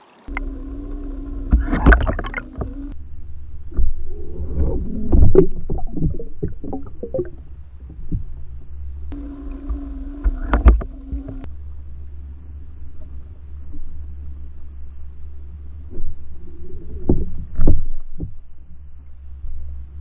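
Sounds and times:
steady hum: 0.0 - 20.0
muffled underwater rumble: 0.2 - 20.0
knocks and clicks: 0.3 - 3.0, 9.1 - 11.5.

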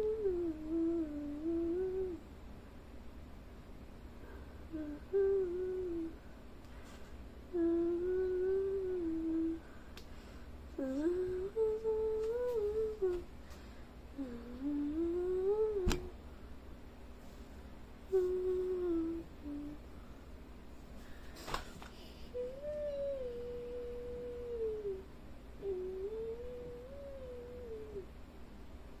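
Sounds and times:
person humming: 0.0 - 2.3, 4.3 - 6.3, 7.5 - 9.8, 10.8 - 13.3, 14.1 - 16.2, 18.1 - 19.8, 22.1 - 28.1.

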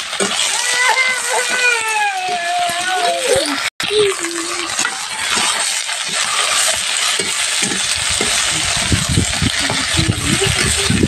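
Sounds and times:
onions sizzling in hot oil: 0.0 - 11.0
metal spatula scraping a pan: 4.3 - 10.8.

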